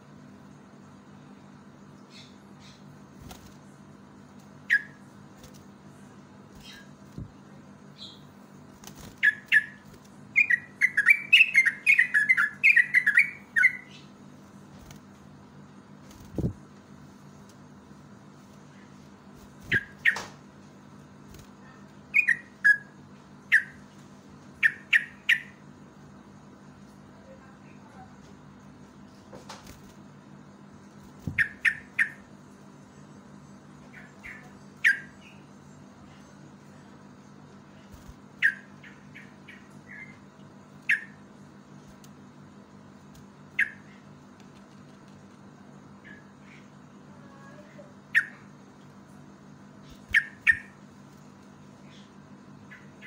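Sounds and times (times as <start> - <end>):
bird chirping and singing: 9.2 - 14.1, 22.1 - 22.9, 49.9 - 50.8.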